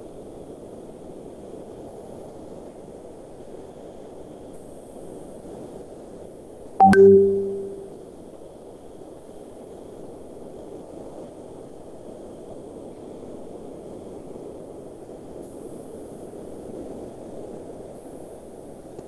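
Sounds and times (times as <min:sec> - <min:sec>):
notification chime: 0:06.8 - 0:07.9.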